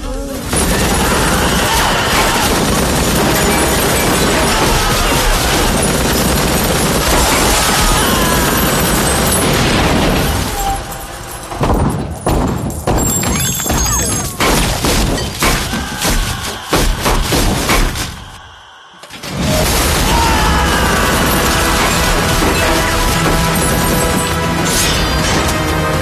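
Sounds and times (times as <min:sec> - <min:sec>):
action film music: 0:00.0 - 0:13.0, 0:14.5 - 0:26.0
explosions: 0:00.4 - 0:13.2, 0:19.2 - 0:26.0
heavy gunfire: 0:00.4 - 0:13.2, 0:14.4 - 0:18.4, 0:19.2 - 0:26.0.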